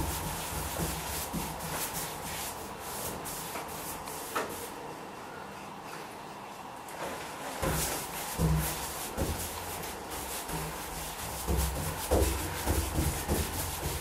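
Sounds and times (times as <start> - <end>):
paintbrush scratching on wood: 0.0 - 4.6, 7.6 - 14.0.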